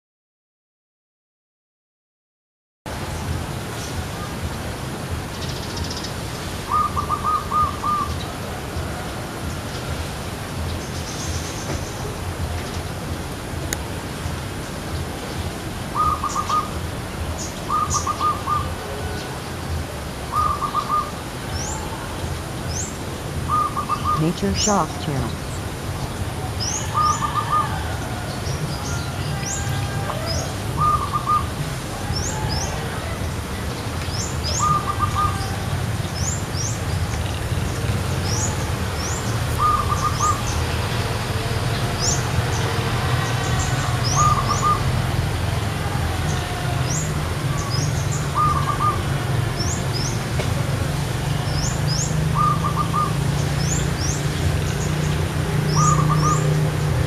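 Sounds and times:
dove cooing: 0:06.7 - 0:09.1, 0:16.0 - 0:16.8, 0:17.7 - 0:19.2, 0:20.3 - 0:21.2, 0:23.5 - 0:24.2, 0:30.3 - 0:31.6, 0:39.6 - 0:40.6, 0:48.4 - 0:49.1, 0:52.3 - 0:53.2.

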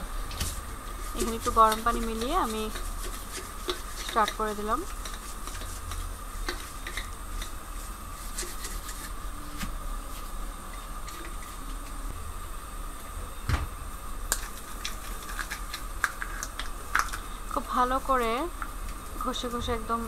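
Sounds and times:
background hum: 0:00.0 - 0:20.0
brush scrubbing plastic bottle: 0:00.5 - 0:09.7.

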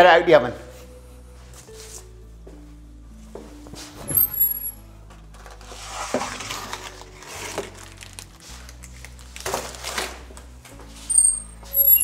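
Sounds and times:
baking tray scraping and rustling: 0:05.5 - 0:07.8.

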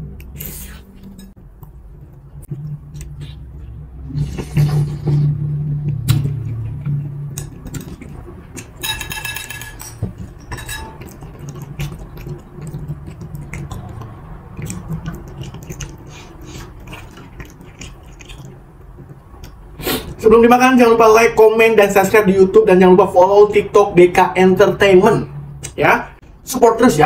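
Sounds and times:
chewing: 0:00.2 - 0:04.7, 0:05.9 - 0:08.8, 0:10.2 - 0:20.2
metal fork on ceramic plate: 0:08.8 - 0:11.1.

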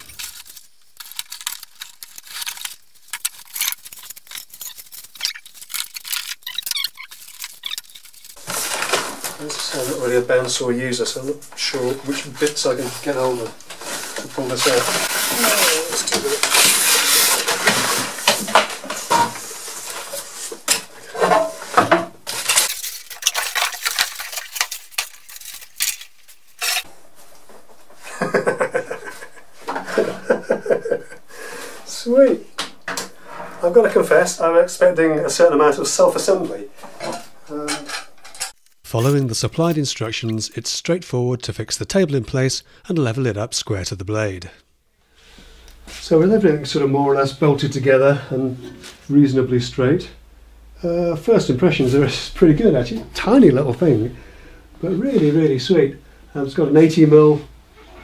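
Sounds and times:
plastic packaging crinkling: 0:00.0 - 0:10.6, 0:22.3 - 0:26.9
cardboard rustling: 0:00.0 - 0:20.9
loud scrape: 0:13.8 - 0:18.3.

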